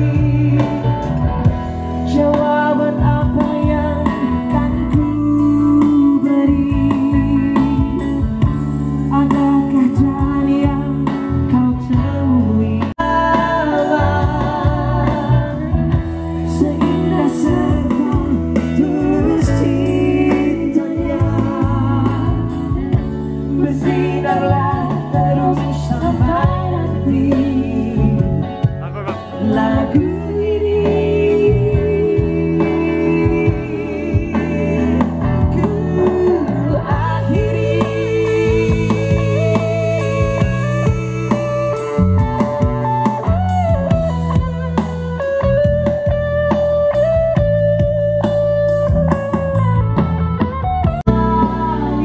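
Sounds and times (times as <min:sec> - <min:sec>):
vocalist singing: 0:00.0 - 0:43.1, 0:51.1 - 0:52.0
bass: 0:00.0 - 0:52.0
electric guitar: 0:00.0 - 0:52.0
keyboard: 0:00.0 - 0:52.0.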